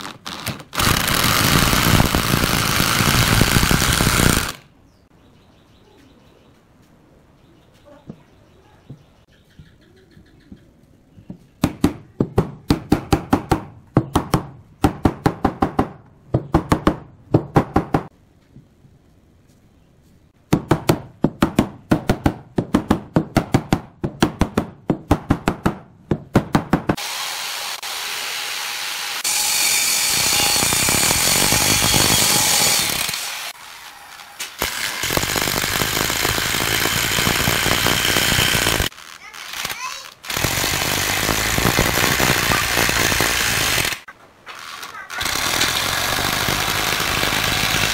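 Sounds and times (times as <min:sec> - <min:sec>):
cordless drill driving screws: 0:00.0 - 0:04.6, 0:27.0 - 0:44.0, 0:44.6 - 0:47.9.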